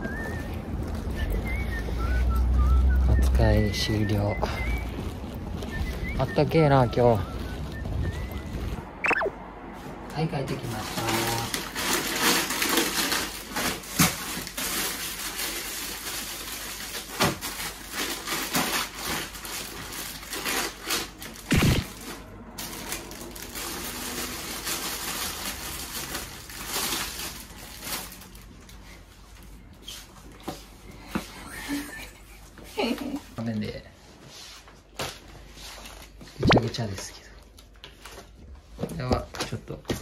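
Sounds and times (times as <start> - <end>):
plastic bags rustling and crinkling: 0.0 - 9.0, 10.5 - 30.5.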